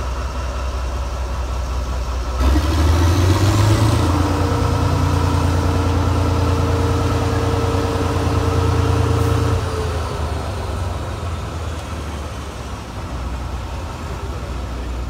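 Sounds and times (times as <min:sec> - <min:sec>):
diesel locomotive engine drone: 0:00.0 - 0:15.0.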